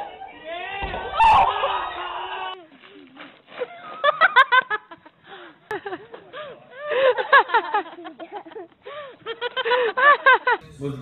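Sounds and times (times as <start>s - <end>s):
person giggling: 6.9s - 10.7s.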